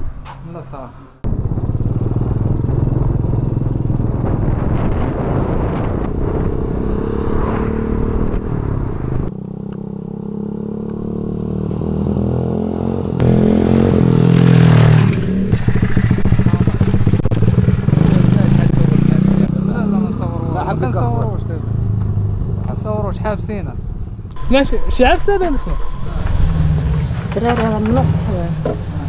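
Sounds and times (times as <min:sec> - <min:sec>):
wind and road noise: 0:00.0 - 0:29.0
motorcycle engine running: 0:01.2 - 0:04.7, 0:13.2 - 0:20.3, 0:24.3 - 0:29.0.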